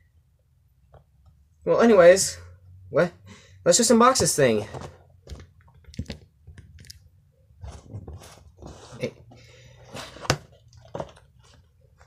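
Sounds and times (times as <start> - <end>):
cardboard rustling and scraping: 4.0 - 6.3, 7.6 - 12.0.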